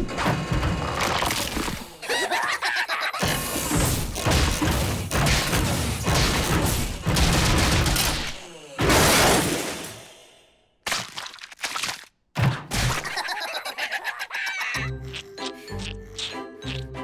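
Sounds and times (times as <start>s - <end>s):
cackling laughter: 2.0s - 3.5s, 12.9s - 17.0s.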